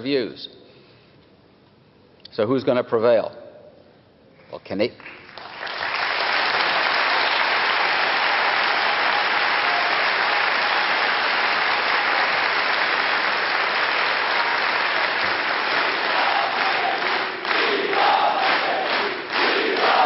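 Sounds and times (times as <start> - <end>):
large audience applauding: 5.0 - 20.0.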